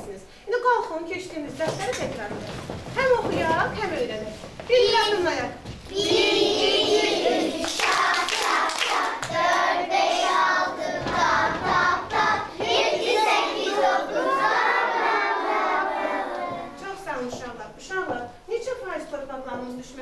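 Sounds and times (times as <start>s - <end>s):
children singing in chorus: 5.9s - 16.8s
hand claps: 7.6s - 9.7s.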